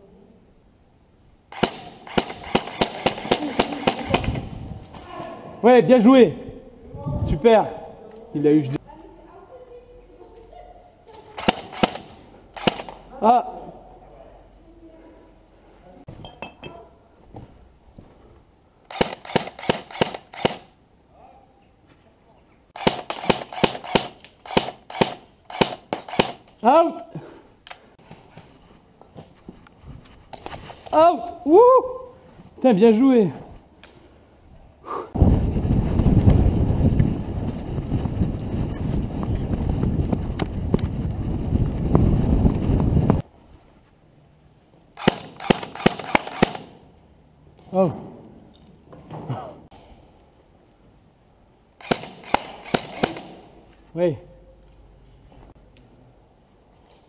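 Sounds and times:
airsoft rifle shots: 0:01.5 - 0:04.6, 0:11.4 - 0:13.1, 0:18.9 - 0:20.8, 0:22.8 - 0:26.5, 0:45.0 - 0:46.9, 0:51.8 - 0:53.6
sharp clicks: 0:11.4 - 0:13.0, 0:18.8 - 0:20.7, 0:45.0 - 0:46.8
microphone jolting rumble: 0:35.2 - 0:43.2.

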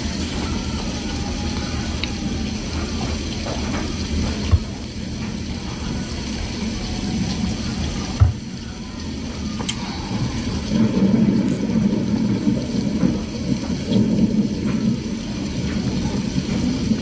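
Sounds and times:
close chewing and mouth sounds: 0:00.1 - 0:04.5.

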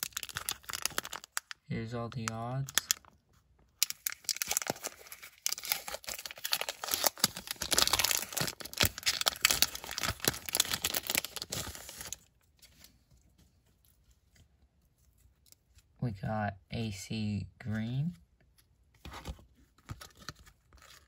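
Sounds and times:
foil wrapper tearing and crinkling: 0:00.0 - 0:01.6, 0:03.8 - 0:12.3.

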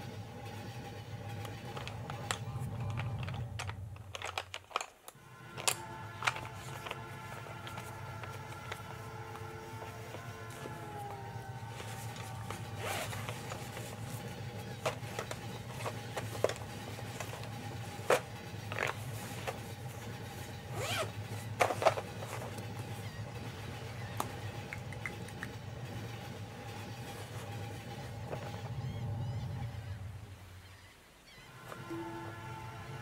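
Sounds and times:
steady low hum: 0:00.0 - 0:33.0
paper pages rustling: 0:00.5 - 0:24.5.

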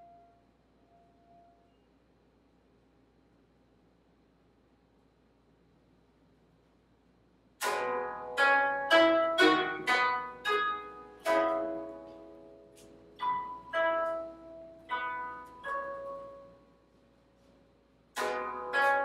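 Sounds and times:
koto plucked notes: 0:07.6 - 0:16.6, 0:18.2 - 0:19.0.

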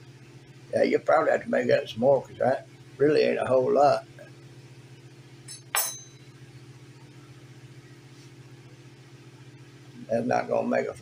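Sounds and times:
steady low hum: 0:00.0 - 0:11.0
metal knife clinking on counter: 0:05.5 - 0:06.2.

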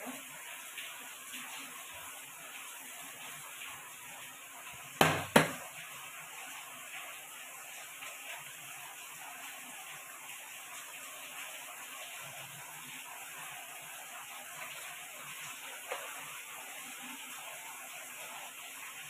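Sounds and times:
bowl pressed into dough: 0:05.0 - 0:05.6.

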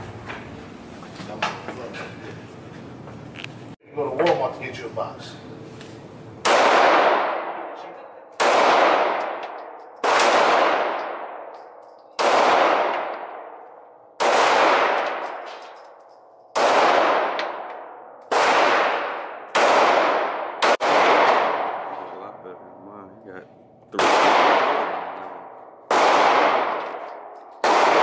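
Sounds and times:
handgun shots with echo: 0:08.4 - 0:11.5, 0:12.2 - 0:13.6, 0:14.2 - 0:15.8, 0:16.6 - 0:22.0, 0:24.0 - 0:28.0.

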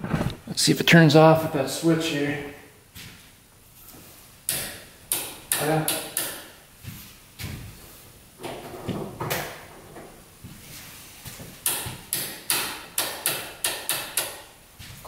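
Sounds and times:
switches clicking and knocking: 0:04.5 - 0:06.5, 0:11.6 - 0:14.5.

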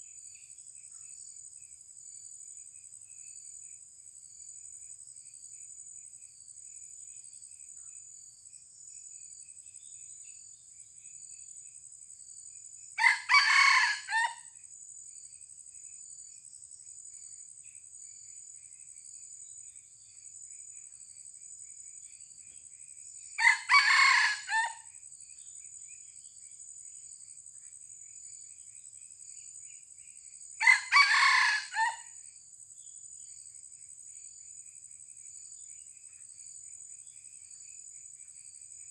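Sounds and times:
high insect drone: 0:00.0 - 0:38.9
rooster crowing: 0:13.0 - 0:14.5, 0:23.4 - 0:24.8, 0:30.6 - 0:32.1.

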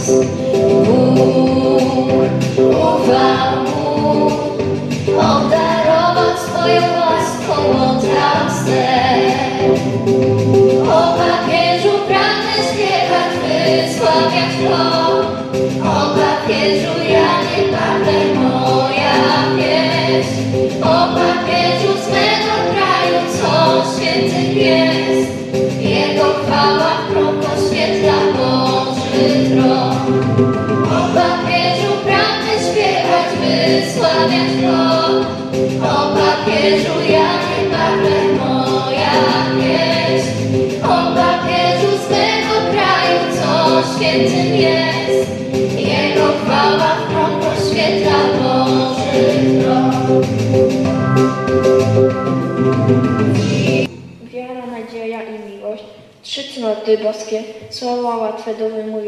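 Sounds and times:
held accompaniment tones: 0:00.0 - 0:54.2
girls' choir singing: 0:10.8 - 0:30.2, 0:30.8 - 0:50.3.

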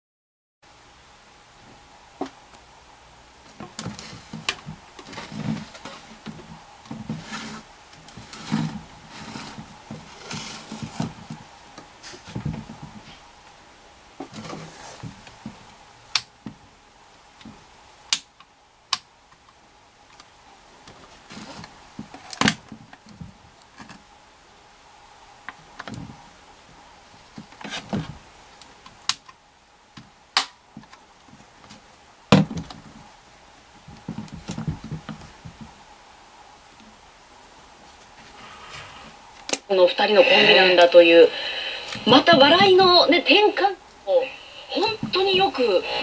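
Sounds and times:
light rubbing of plastic: 0:03.5 - 0:13.3, 0:14.2 - 0:15.7, 0:20.9 - 0:24.1, 0:27.1 - 0:28.8.

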